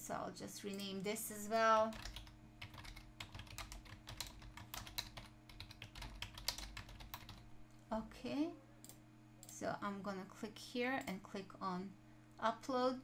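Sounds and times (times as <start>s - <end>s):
low steady hum: 0.0s - 13.0s
typing on a keyboard: 1.9s - 7.4s.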